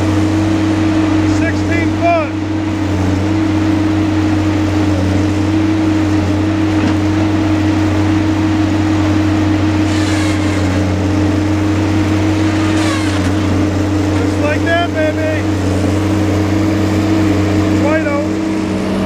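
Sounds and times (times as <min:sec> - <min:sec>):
diesel engine droning: 0:00.0 - 0:19.0
high-pitched hydraulic whine: 0:09.8 - 0:11.1, 0:12.5 - 0:14.5.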